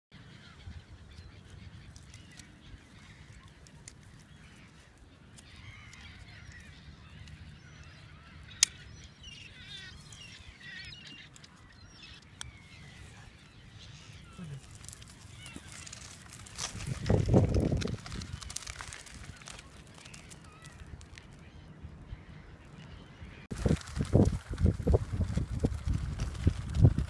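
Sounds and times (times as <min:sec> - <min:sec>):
waterbirds calling: 0:00.2 - 0:25.0
low wind rumble: 0:11.9 - 0:27.0.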